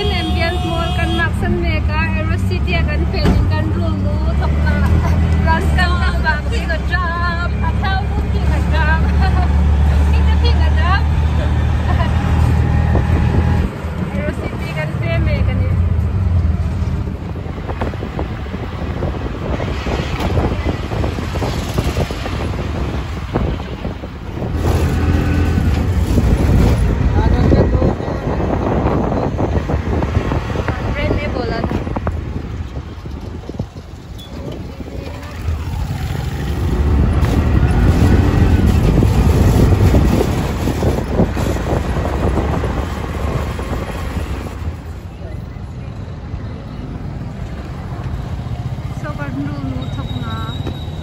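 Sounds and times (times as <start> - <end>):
auto-rickshaw engine rumble: 0.0 - 51.0
road noise: 0.0 - 51.0
wind buffeting microphone: 12.0 - 15.5, 16.2 - 45.6.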